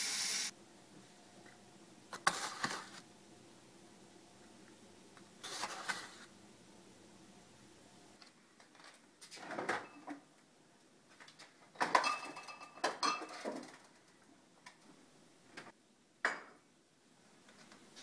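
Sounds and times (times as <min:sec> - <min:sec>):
glass bottles clinking: 0:11.8 - 0:13.6.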